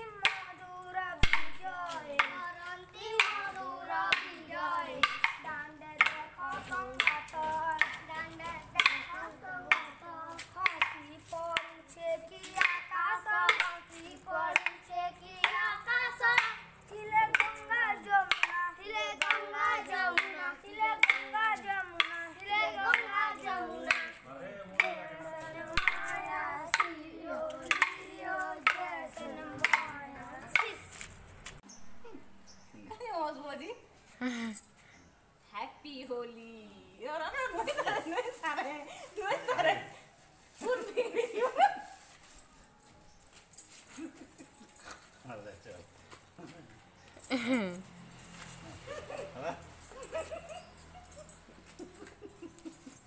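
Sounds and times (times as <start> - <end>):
boys singing: 0.0 - 30.9
wooden sticks clacking: 0.2 - 0.6, 1.2 - 31.2.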